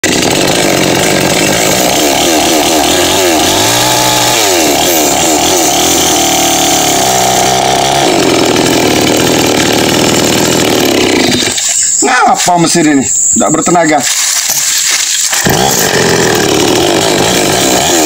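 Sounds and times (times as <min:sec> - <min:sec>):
chainsaw engine revving: 0:00.0 - 0:12.0, 0:14.0 - 0:18.0.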